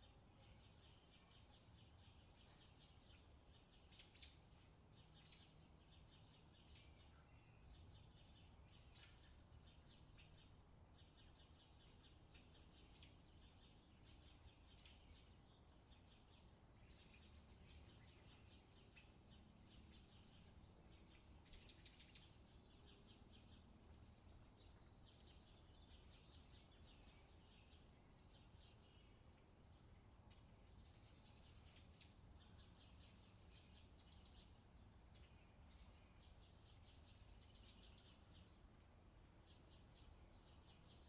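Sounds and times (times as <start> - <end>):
low steady background rumble: 0.0 - 41.0
small birds chirping: 0.0 - 41.0.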